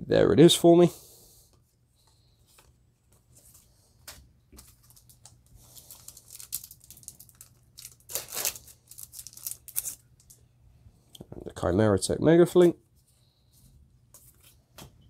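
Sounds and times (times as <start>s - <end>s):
trading cards rustling: 2.4s - 10.4s
foil wrapper tearing and crinkling: 4.7s - 10.1s.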